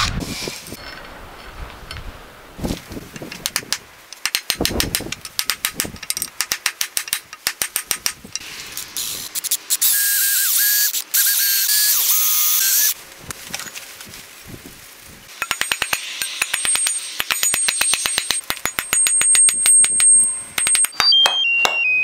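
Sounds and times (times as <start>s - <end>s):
electric drill boring wood: 9.8s - 13.0s.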